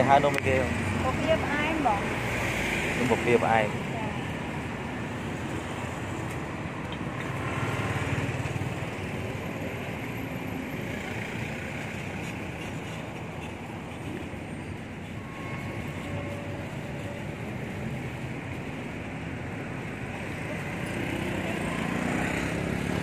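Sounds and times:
street traffic noise: 0:00.0 - 0:23.0
vehicle passing: 0:20.2 - 0:23.0.

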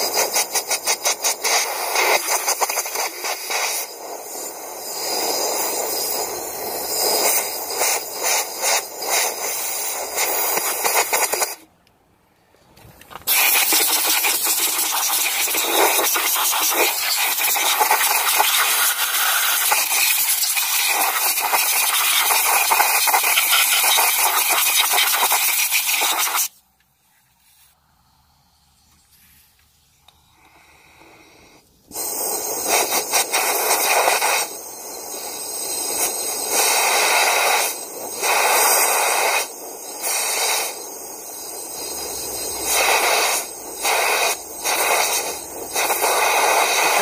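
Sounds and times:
air hissing through hose nozzle: 0:00.0 - 0:11.7, 0:13.2 - 0:26.6, 0:27.5 - 0:47.0
nozzle scraping metal: 0:13.1 - 0:26.5, 0:31.9 - 0:47.0.

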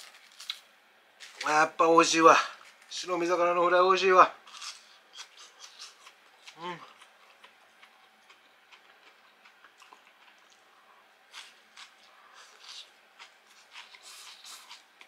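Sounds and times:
crunchy food chewing: 0:00.0 - 0:00.6, 0:04.4 - 0:15.0.

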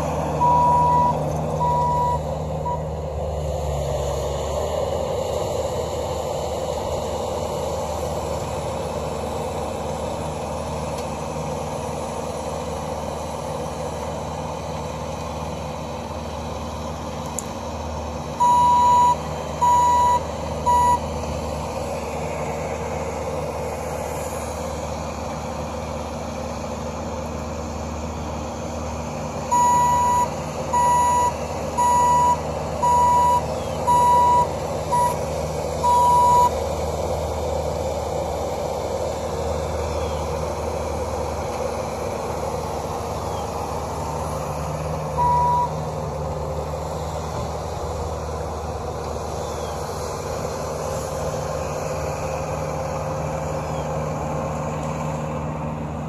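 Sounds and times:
skid steer engine running: 0:00.0 - 0:56.0
back-up alarm beeping: 0:00.4 - 0:02.9, 0:18.4 - 0:21.1, 0:29.5 - 0:35.2, 0:35.8 - 0:36.5, 0:45.2 - 0:45.8.

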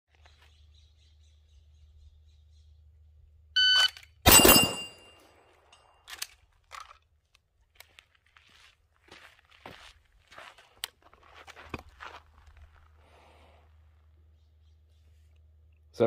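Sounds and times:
shot timer beep: 0:03.6 - 0:05.2
pistol shots: 0:04.3 - 0:05.1
steel target ringing: 0:04.3 - 0:05.9.

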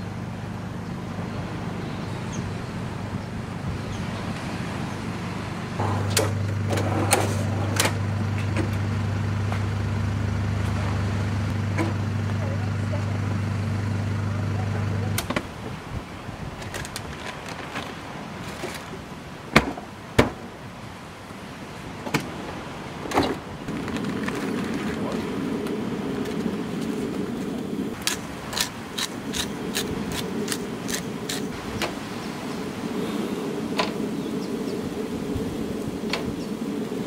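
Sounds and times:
camping gear knocks and clunks: 0:23.0 - 0:25.3.

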